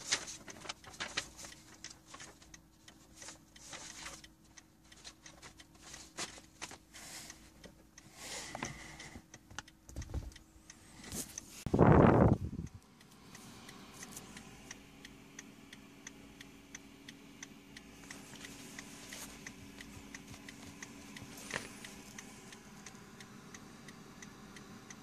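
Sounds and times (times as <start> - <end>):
clicks taps and rustles: 0.0 - 10.4, 18.0 - 22.3
faint steady hum: 0.0 - 25.0.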